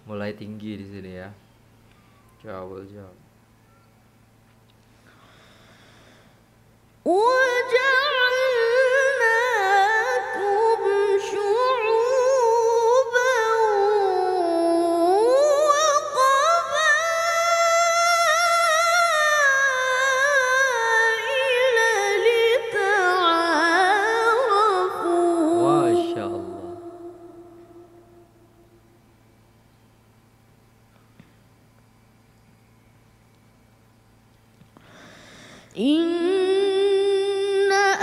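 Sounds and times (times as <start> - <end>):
boy reciting melodically: 7.1 - 28.0, 35.8 - 38.0.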